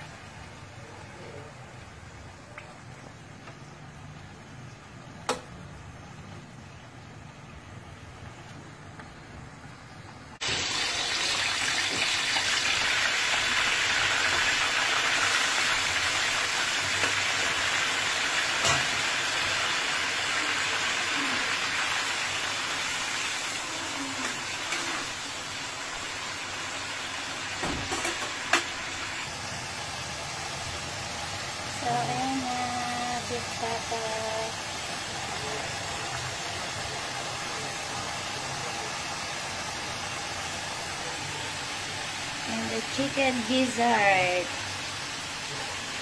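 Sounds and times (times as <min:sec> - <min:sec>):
meat sizzling in a pan: 0:10.4 - 0:46.0.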